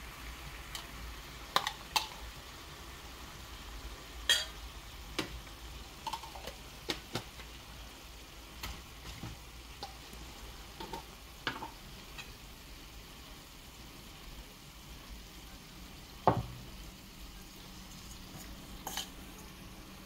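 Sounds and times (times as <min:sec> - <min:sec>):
metal spoon clinking against bowl: 0:04.3 - 0:04.6.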